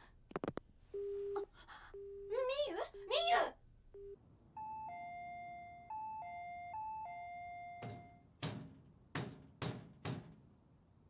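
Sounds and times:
two-note door chime: 4.6s - 8.2s
knocks on a door: 7.8s - 10.4s.

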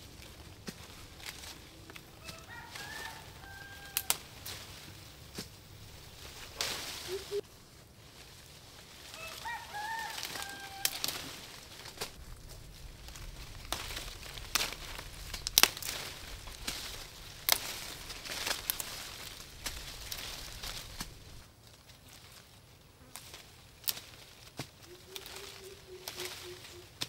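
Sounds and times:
stems snapping: 0.0s - 7.4s, 9.1s - 21.4s, 23.1s - 27.0s
leaves rustling: 0.0s - 27.0s
bird chirping: 7.0s - 7.4s.

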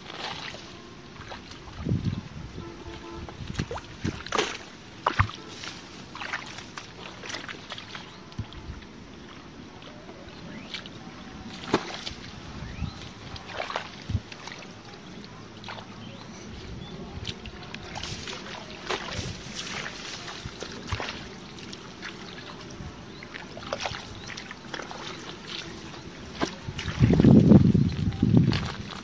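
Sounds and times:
splashing in shallow muddy water: 0.0s - 29.0s
wading splashes: 0.0s - 29.0s
wet slaps and squelches in mud: 3.5s - 8.2s, 11.5s - 12.3s, 17.2s - 22.5s, 23.3s - 29.0s.

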